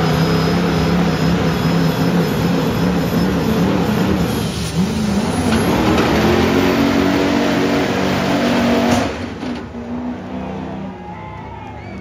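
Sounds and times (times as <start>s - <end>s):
diesel pickup engine at full throttle: 0.0s - 10.9s.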